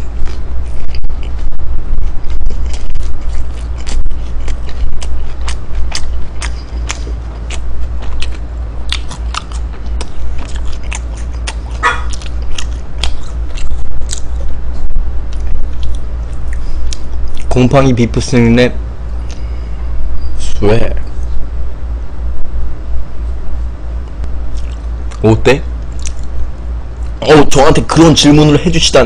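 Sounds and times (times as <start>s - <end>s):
steady low hum: 0.0s - 29.0s
chewing mouth clicks and smacks: 2.0s - 14.5s, 15.3s - 17.6s, 24.2s - 25.2s, 25.8s - 26.4s.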